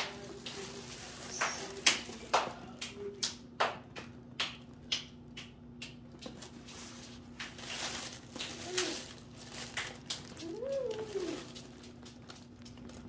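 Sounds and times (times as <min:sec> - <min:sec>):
plastic wrapping crinkling: 0:00.0 - 0:02.6, 0:06.2 - 0:13.0.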